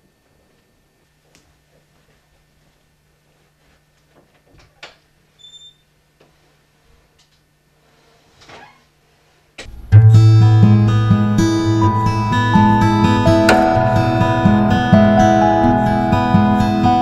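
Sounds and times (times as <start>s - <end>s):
low steady hum: 9.6s - 17.0s.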